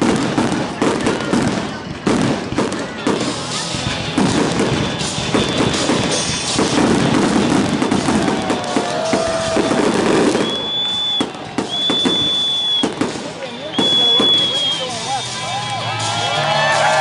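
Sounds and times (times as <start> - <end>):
fireworks bangs and crackling: 0.0 - 17.0
high firework whistle: 5.3 - 16.8.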